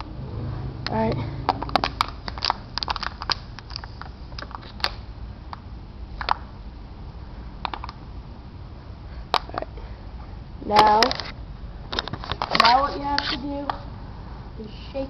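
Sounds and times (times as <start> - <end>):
plastic bottle crackling: 1.5 - 5.0.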